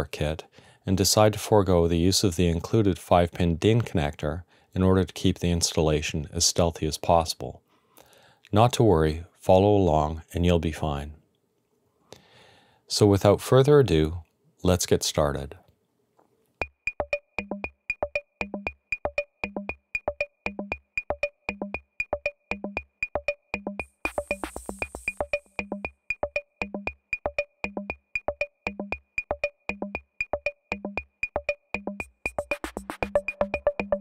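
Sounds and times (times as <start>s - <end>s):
drum machine rhythm: 16.6s - 34.0s.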